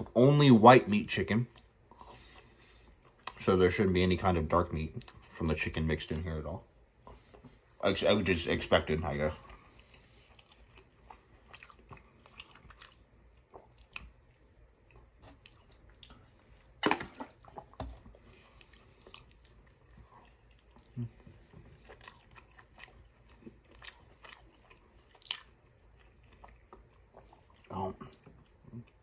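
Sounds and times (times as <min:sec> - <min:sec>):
chewing crunchy food: 0:08.8 - 0:29.0.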